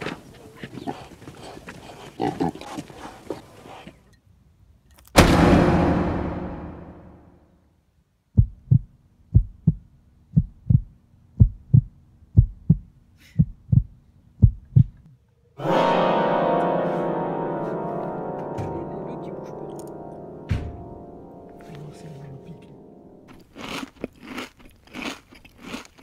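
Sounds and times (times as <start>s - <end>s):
loud orchestral chord: 5.2s - 7.2s, 15.6s - 23.3s
heartbeat thumps: 8.4s - 15.0s.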